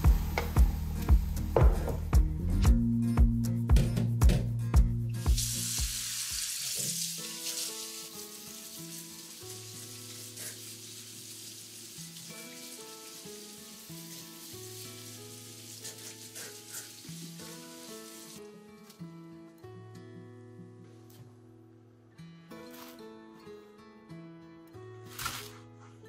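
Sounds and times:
light background music: 0.0 - 19.6
tap water running and splashing: 5.3 - 18.4.

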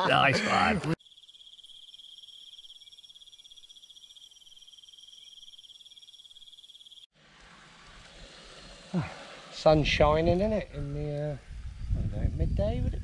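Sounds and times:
faint outdoor background noise: 0.0 - 13.0
insect high trill: 1.0 - 7.1.

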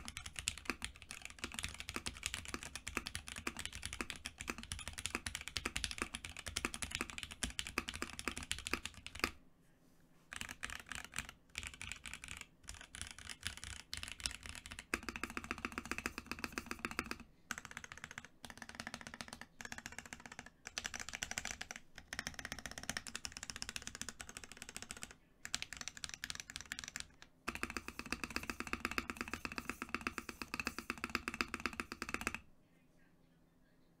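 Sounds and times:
mechanical keyboard typing: 0.0 - 9.4, 10.3 - 32.4.

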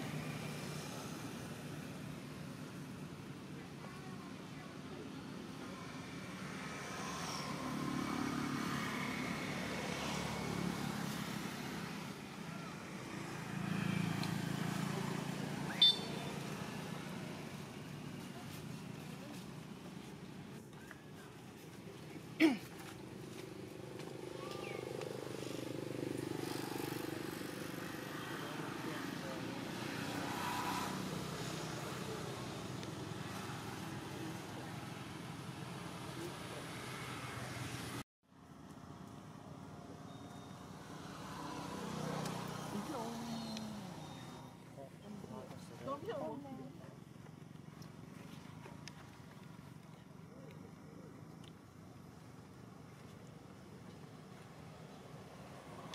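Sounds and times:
passing motor traffic hum: 0.0 - 55.9
sharp high-pitched squeak: 15.7 - 16.3.

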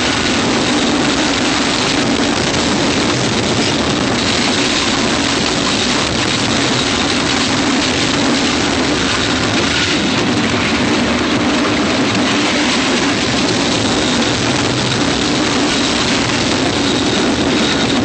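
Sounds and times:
roller coaster wheels rumbling on rails: 0.0 - 18.0
rushing wind: 0.0 - 18.0.

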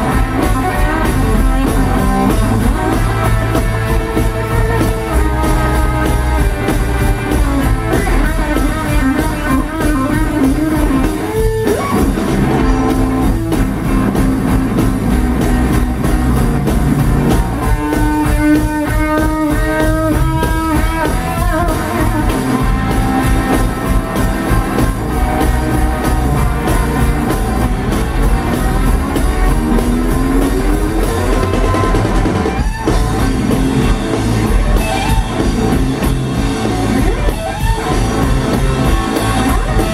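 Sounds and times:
drum kit: 0.0 - 39.9
electric bass: 0.0 - 39.9
electric guitar lead: 0.0 - 39.9.

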